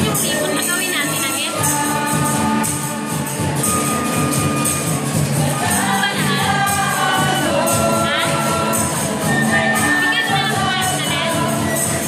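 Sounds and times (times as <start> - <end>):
acoustic guitars playing: 0.0 - 12.0
jingling percussion: 0.0 - 12.0
voices singing along: 0.0 - 12.0
flute: 3.1 - 5.3, 8.7 - 12.0.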